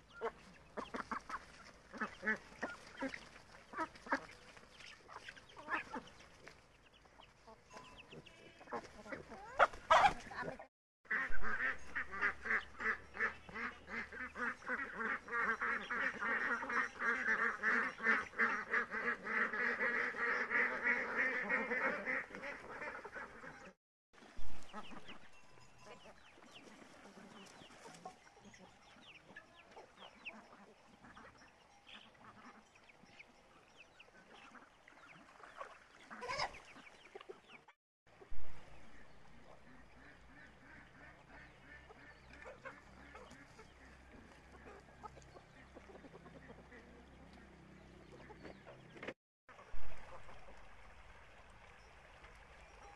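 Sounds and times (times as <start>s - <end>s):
chickens: 0.0s - 23.8s, 24.4s - 50.8s
ducks quacking loudly: 8.6s - 23.8s, 38.5s - 47.0s.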